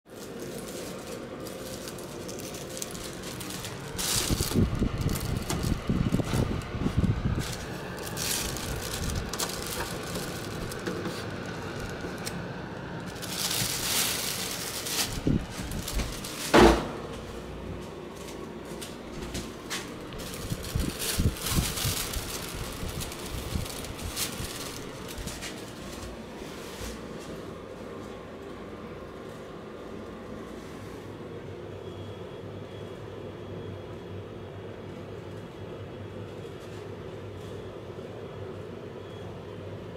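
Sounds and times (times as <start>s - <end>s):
plastic bag rustling: 0.1s - 28.2s
air purifier fan running: 0.1s - 39.9s.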